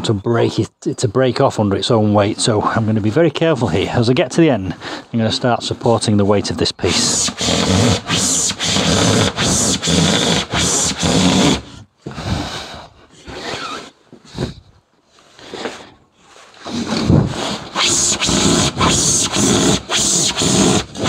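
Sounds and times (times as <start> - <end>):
handsaw rasping through foam board: 5.8 - 14.5, 16.6 - 21.0.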